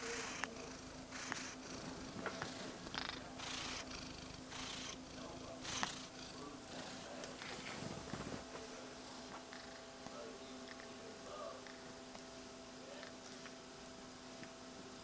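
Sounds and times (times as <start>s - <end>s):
cat purring: 0.0s - 9.9s.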